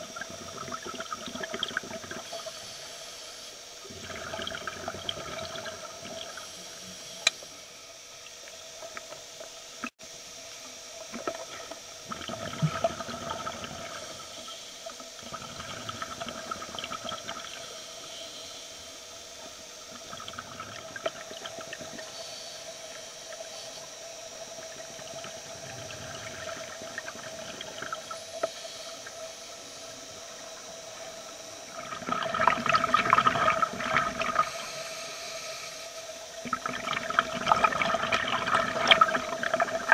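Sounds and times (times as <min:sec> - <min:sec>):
exhaled bubbles rushing underwater: 0:00.0 - 0:02.6, 0:03.8 - 0:06.6, 0:11.1 - 0:14.5, 0:15.2 - 0:17.7, 0:19.9 - 0:22.1, 0:24.2 - 0:28.3, 0:29.8 - 0:34.7, 0:36.3 - 0:39.9
faint steady hum: 0:00.0 - 0:39.9.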